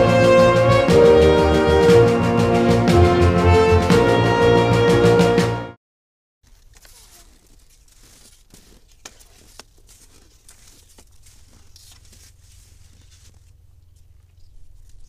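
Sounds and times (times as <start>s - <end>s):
skis and poles on snow: 6.4s - 15.0s.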